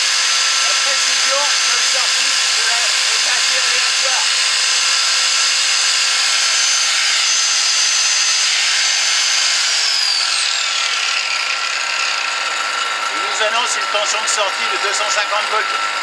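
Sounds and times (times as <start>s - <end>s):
angle grinder whining: 0.0s - 16.0s
generator engine running: 0.0s - 16.0s.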